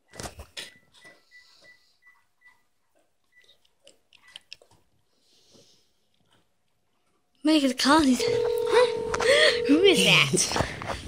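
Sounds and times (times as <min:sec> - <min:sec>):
keypad beeps: 0:08.2 - 0:10.2.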